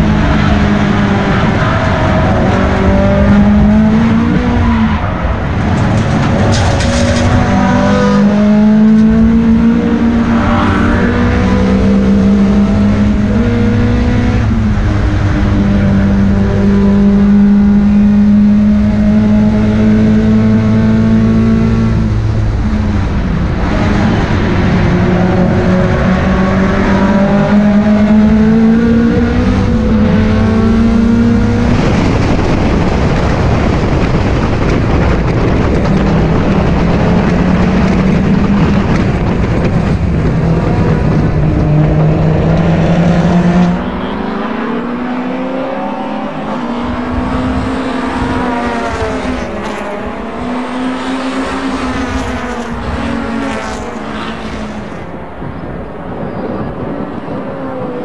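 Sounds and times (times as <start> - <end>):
racing car engine: 0.0 - 58.0.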